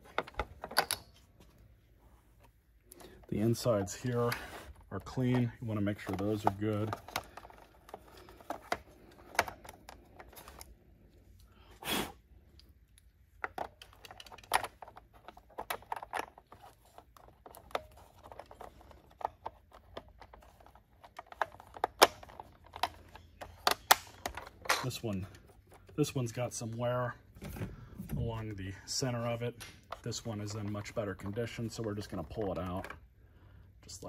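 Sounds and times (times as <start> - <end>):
small plastic clicks and knocks: 12.5 - 26.0.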